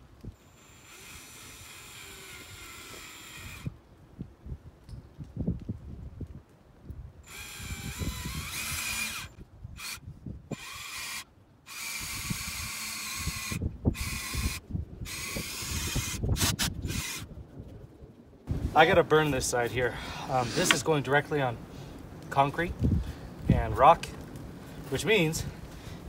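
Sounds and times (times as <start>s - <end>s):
drill boring into wood: 0.4s - 3.7s, 7.2s - 17.3s.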